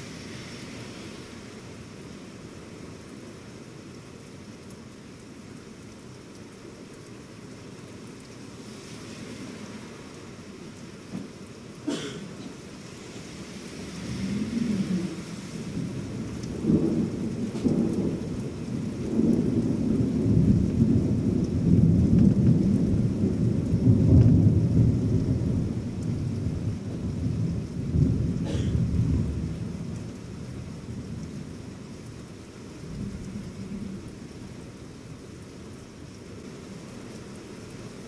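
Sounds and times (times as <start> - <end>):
steady rain: 0.0 - 38.0
thunder rumbling: 13.8 - 34.8.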